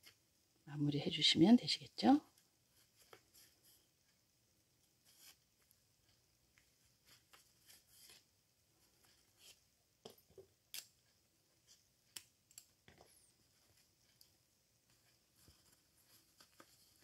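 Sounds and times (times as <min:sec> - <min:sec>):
light clicks and rustles of yarn: 0:04.8 - 0:17.0.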